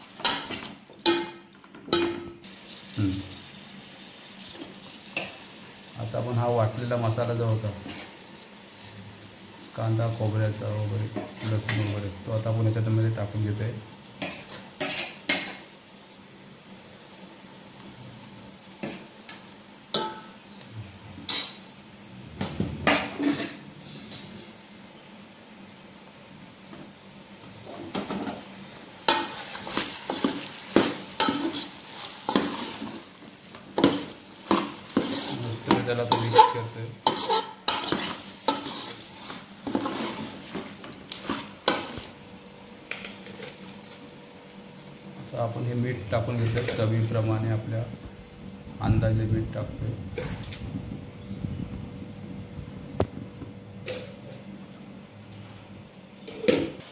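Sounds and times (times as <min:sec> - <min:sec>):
light sizzle of frying: 0:00.0 - 0:56.9
utensils knocking on metal pot: 0:00.2 - 0:02.4, 0:20.0 - 0:20.3
metal spoon scraping a pot: 0:33.8 - 0:40.5.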